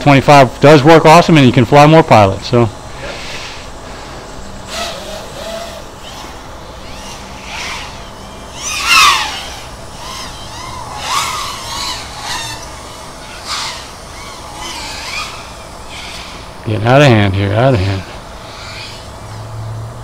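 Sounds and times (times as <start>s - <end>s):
quadcopter motors whining: 0.0s - 20.0s.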